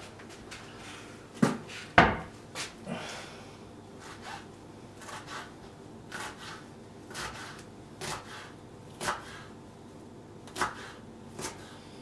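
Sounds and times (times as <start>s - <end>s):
knife chopping on wooden board: 6.1s - 9.5s, 10.4s - 11.7s.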